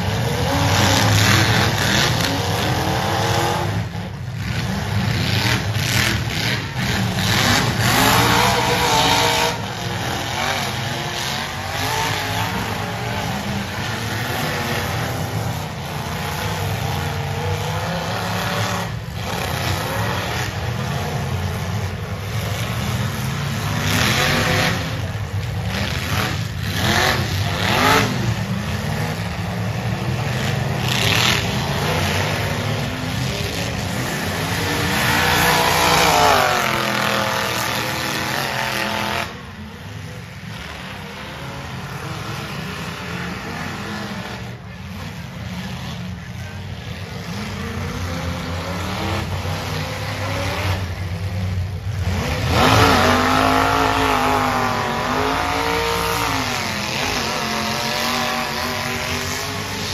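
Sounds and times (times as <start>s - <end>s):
car engines revving: 0.0s - 59.9s.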